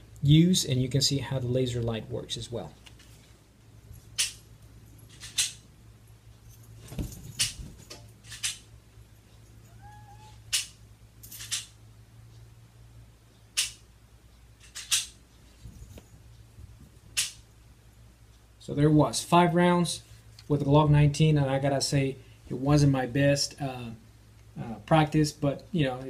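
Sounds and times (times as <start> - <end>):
faint short squeak: 9.6 - 10.4.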